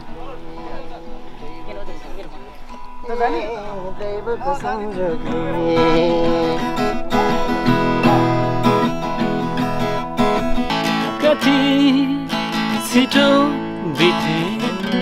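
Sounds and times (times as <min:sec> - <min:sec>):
acoustic guitar strumming: 0:00.0 - 0:15.0
man singing: 0:03.0 - 0:08.7, 0:10.9 - 0:15.0.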